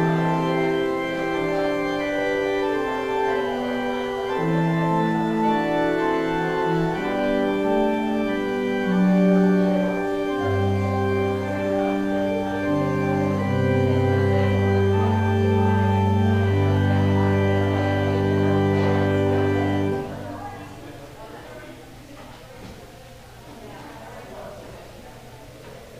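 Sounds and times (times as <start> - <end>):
church organ chords: 0.0 - 21.0.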